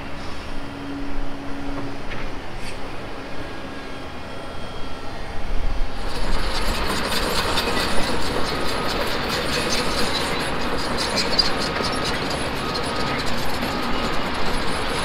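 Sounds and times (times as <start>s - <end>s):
heavy machinery rattling: 6.0s - 15.0s.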